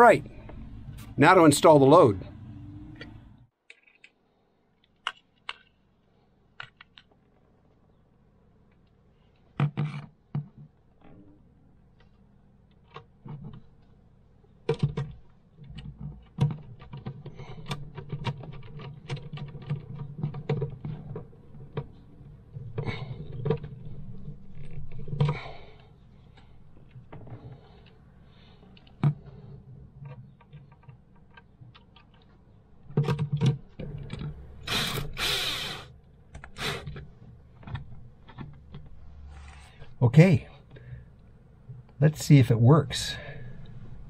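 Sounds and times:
screwdriver and hands clicking: 0:03.0 - 0:04.2, 0:04.8 - 0:05.9, 0:06.5 - 0:07.8, 0:08.7 - 0:40.0.

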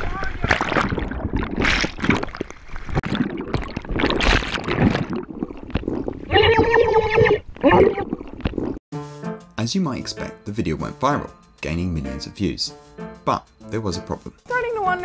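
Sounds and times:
water splashing and bubbling: 0:00.0 - 0:08.8.

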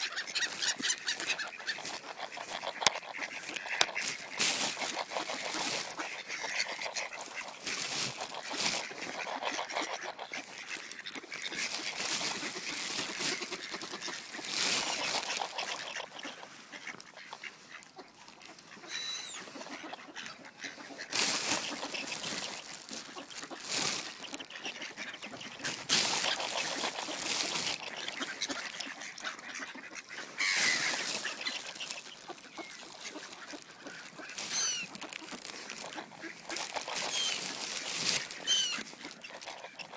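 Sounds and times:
ducks calling: 0:00.0 - 0:39.9.

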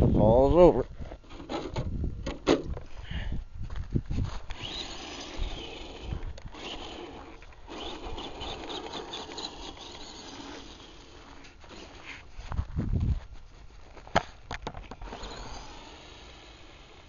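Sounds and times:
footsteps crunching on gravel: 0:03.6 - 0:04.6, 0:06.0 - 0:15.0.

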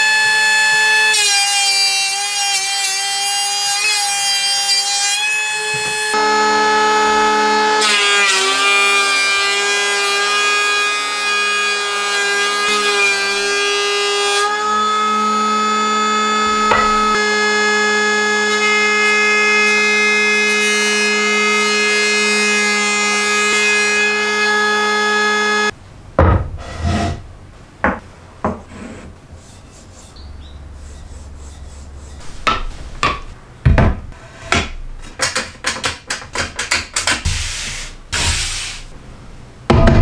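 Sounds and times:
electric planer whining: 0:04.9 - 0:25.7
sharp knocks on wood: 0:16.7 - 0:17.0
wooden pieces sliding on plywood: 0:26.6 - 0:27.2, 0:28.5 - 0:29.9.

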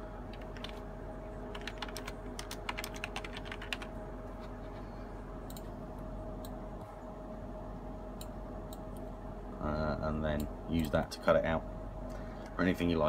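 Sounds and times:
steady hum: 0:00.0 - 0:13.0
typing on computer keyboard: 0:00.3 - 0:00.8, 0:01.5 - 0:03.9.

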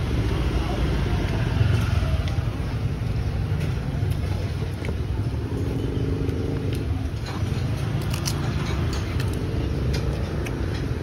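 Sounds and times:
people talking: 0:00.0 - 0:05.8
motorbike and car engines passing: 0:00.0 - 0:11.0.

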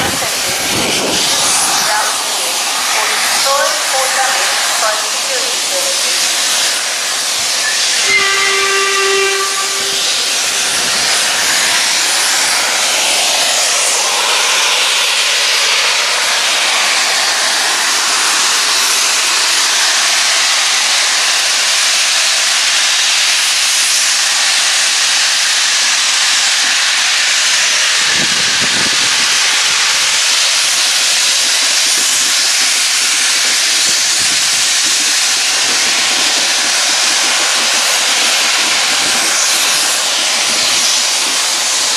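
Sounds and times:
steam hissing: 0:00.0 - 0:41.9
steam locomotive whistle: 0:07.5 - 0:12.0.

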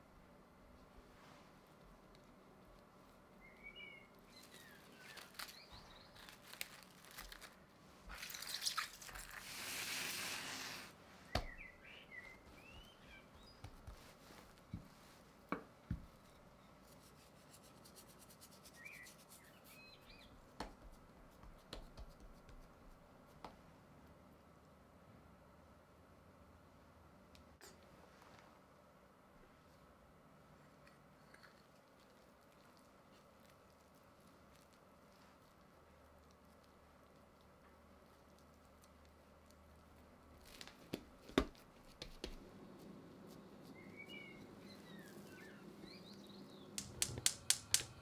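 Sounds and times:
small birds chirping: 0:03.2 - 0:07.2, 0:11.2 - 0:14.3, 0:17.8 - 0:20.6, 0:42.4 - 0:48.0.

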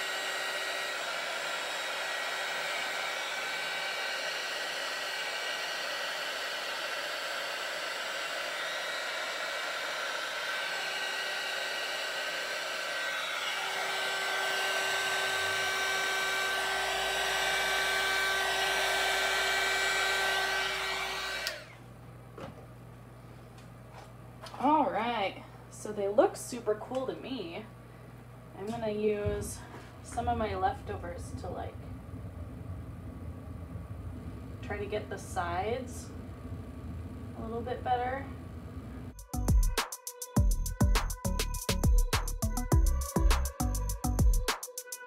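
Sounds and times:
heat gun blowing air: 0:00.0 - 0:21.8.

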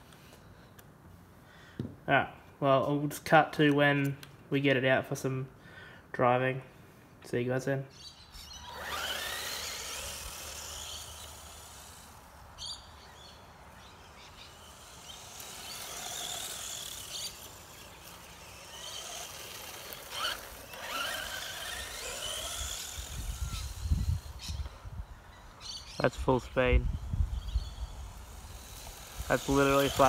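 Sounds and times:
rc car motor whining: 0:07.9 - 0:30.0.

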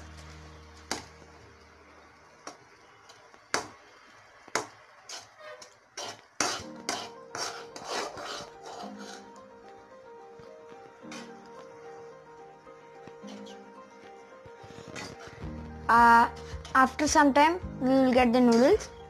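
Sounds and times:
noodles boiling: 0:00.0 - 0:19.0
metal spatula scraping pan: 0:05.1 - 0:09.4.

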